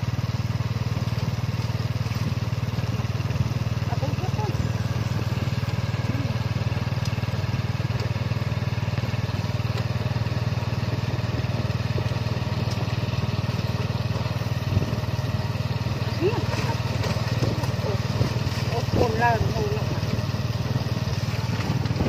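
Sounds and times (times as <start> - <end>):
auto rickshaw engine running: 0.0 - 22.0.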